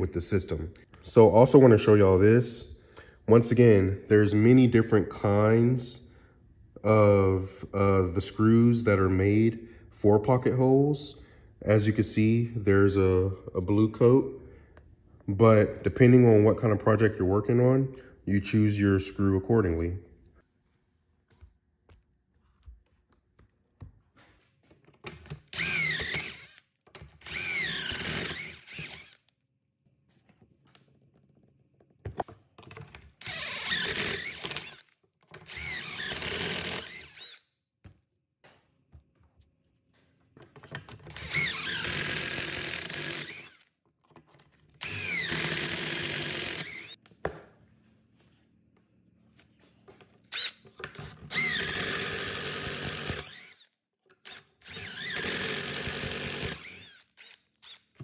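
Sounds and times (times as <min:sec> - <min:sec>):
cordless drill boring into wood: 0:25.5 - 0:29.2, 0:33.2 - 0:37.4, 0:41.1 - 0:43.7, 0:44.8 - 0:47.0, 0:50.3 - 0:50.6, 0:51.3 - 0:58.0.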